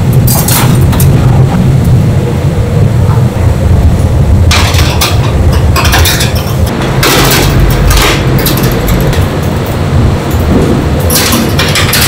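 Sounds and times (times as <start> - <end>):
loud machinery hum: 0.0 - 12.0
wire grill racks clattering on metal: 4.5 - 12.0.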